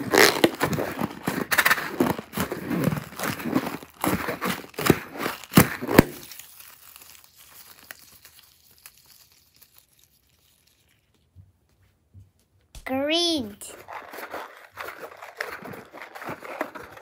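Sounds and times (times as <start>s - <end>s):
confetti balloon crinkling: 0.1s - 11.2s.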